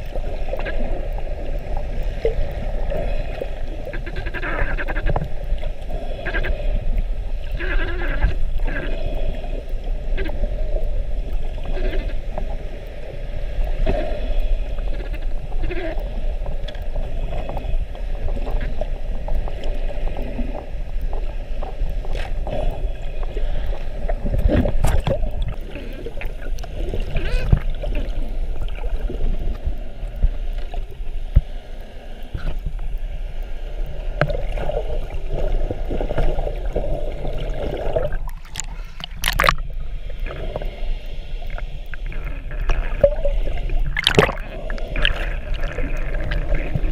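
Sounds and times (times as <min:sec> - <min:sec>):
muffled underwater sloshing: 0:00.0 - 0:46.9
sharp crackle: 0:13.6 - 0:17.6.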